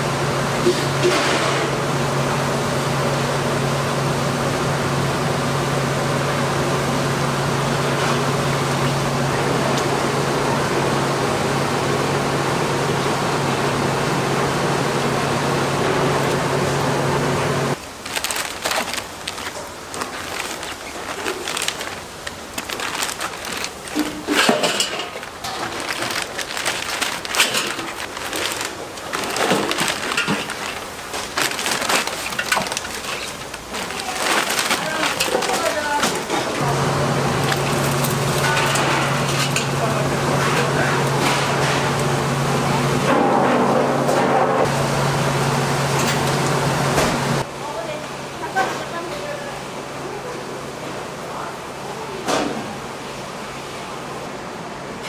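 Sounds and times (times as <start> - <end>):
kitchen equipment hum and hiss: 0.0 - 55.0
wooden skewers clattering in steel bowl: 18.1 - 36.6, 37.4 - 41.8.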